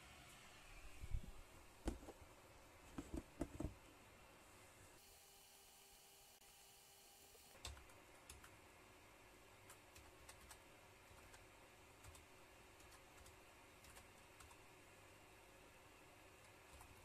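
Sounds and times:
low steady hiss: 0:00.0 - 0:05.0.

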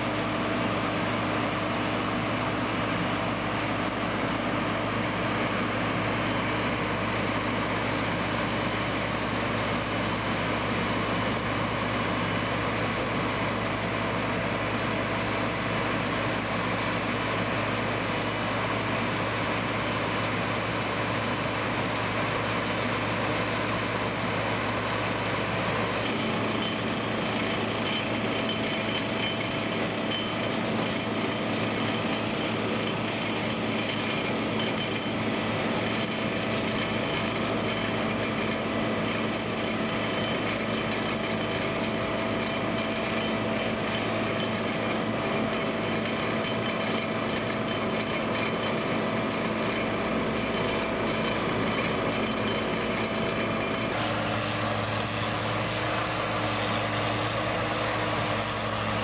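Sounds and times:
engine drone: 0:00.0 - 0:59.0.

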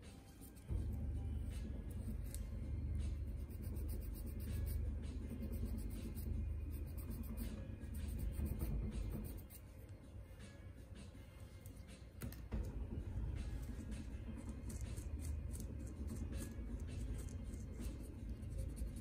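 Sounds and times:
nail file rubbing on toenail: 0:03.0 - 0:09.7.

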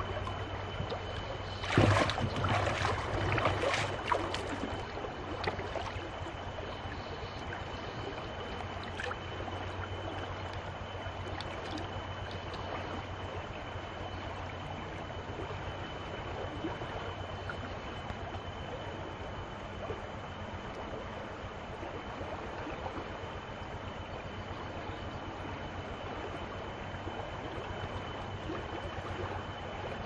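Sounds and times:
wading through splashing water: 0:00.0 - 0:10.4
stream water rushing: 0:01.5 - 0:06.0.

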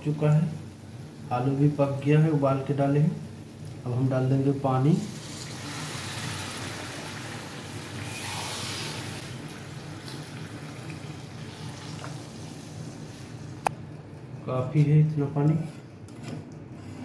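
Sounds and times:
water pouring and splashing: 0:05.2 - 0:13.1.

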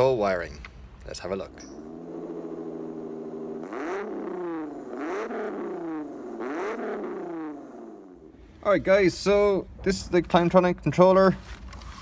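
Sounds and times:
car engine idling and revving: 0:01.2 - 0:09.0.

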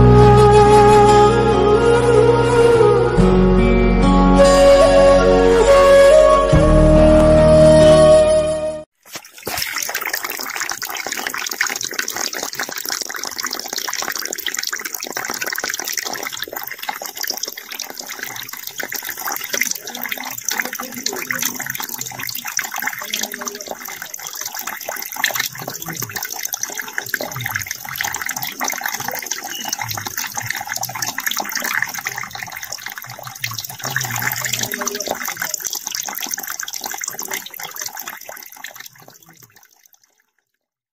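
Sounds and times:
water splashing into a puddle: 0:09.0 - 0:39.9.

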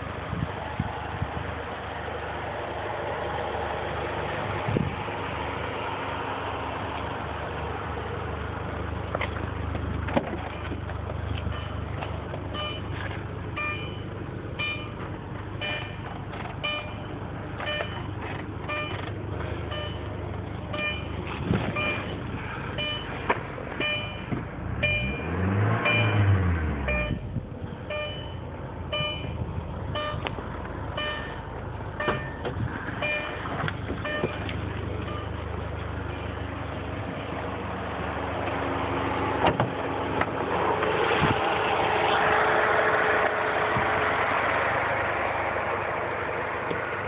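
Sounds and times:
car engine idling and revving: 0:00.0 - 0:47.0
car warning chime beeping: 0:11.5 - 0:11.9, 0:12.5 - 0:13.0, 0:13.6 - 0:15.0, 0:15.6 - 0:19.1, 0:19.7 - 0:21.2, 0:21.8 - 0:22.2, 0:22.8 - 0:23.2, 0:23.8 - 0:30.3, 0:31.0 - 0:35.5.

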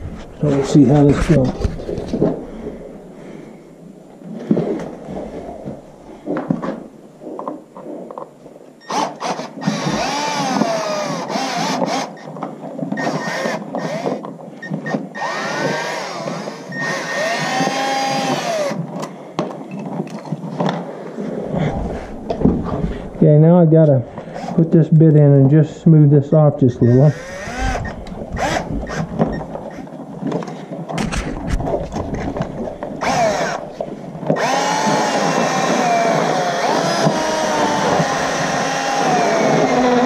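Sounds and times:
cordless drill motor whining: 0:08.8 - 0:12.3, 0:12.9 - 0:18.8, 0:24.2 - 0:24.7, 0:26.8 - 0:29.9, 0:33.0 - 0:40.0.

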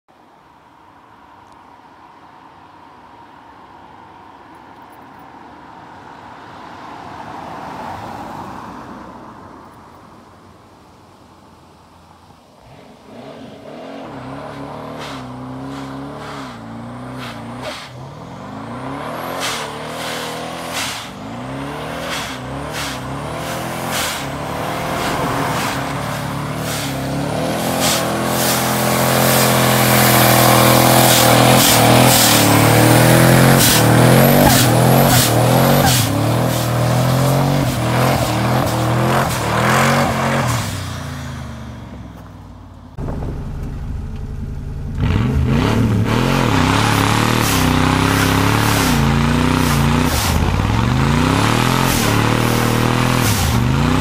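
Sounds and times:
truck engine revving: 0:12.7 - 0:41.6, 0:43.0 - 0:54.0.

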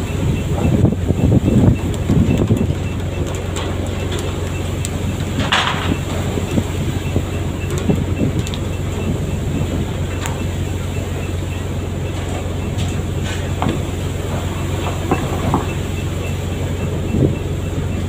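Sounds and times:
boat engine droning: 0:00.0 - 0:18.0.

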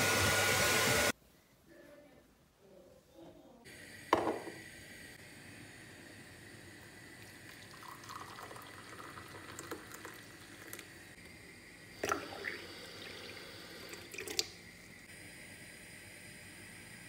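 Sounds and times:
water poured into a glass: 0:07.2 - 0:11.0, 0:12.0 - 0:14.6.

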